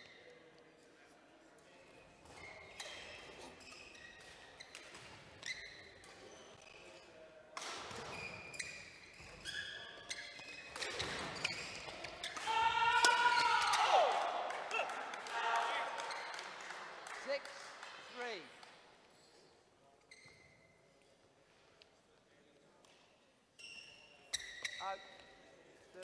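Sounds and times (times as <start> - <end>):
shoes squeaking on court floor: 2.0 - 12.5, 16.0 - 16.5, 19.3 - 21.2, 22.9 - 26.0
rackets striking shuttlecock: 10.7 - 13.4.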